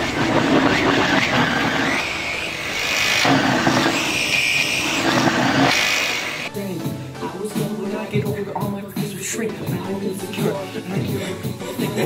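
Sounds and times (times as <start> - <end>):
robot electric motors whining: 0.0 - 6.5.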